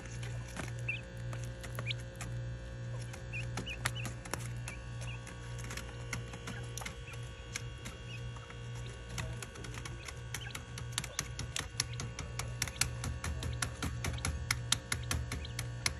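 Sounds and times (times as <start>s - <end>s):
quail pecking at newspaper: 0.0s - 15.9s
steady low hum: 0.0s - 15.9s.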